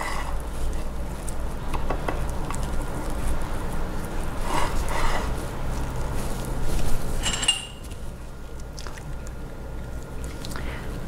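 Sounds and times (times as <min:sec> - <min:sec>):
spatula scraping batter: 0:00.0 - 0:07.3
steady low hum: 0:00.0 - 0:11.0.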